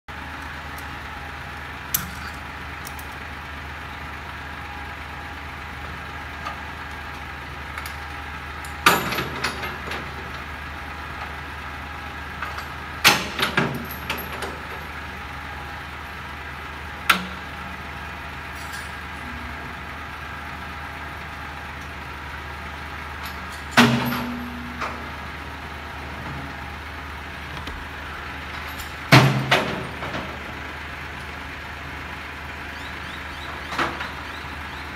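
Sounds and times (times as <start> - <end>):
truck diesel engine idling: 0.1 - 34.9
loud metal clanks and bangs: 12.6 - 14.8, 23.2 - 25.3, 28.4 - 30.6.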